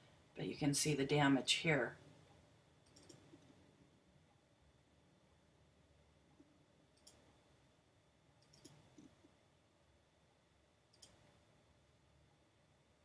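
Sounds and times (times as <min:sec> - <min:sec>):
faint computer mouse clicks: 0:02.8 - 0:03.5, 0:07.0 - 0:07.3, 0:08.4 - 0:09.2, 0:10.9 - 0:11.3.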